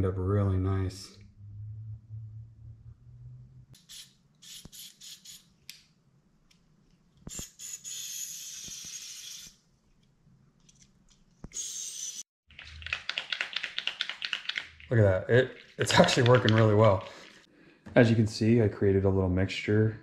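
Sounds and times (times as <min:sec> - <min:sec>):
aerosol spray spurts: 0:03.8 - 0:05.4, 0:07.3 - 0:09.6.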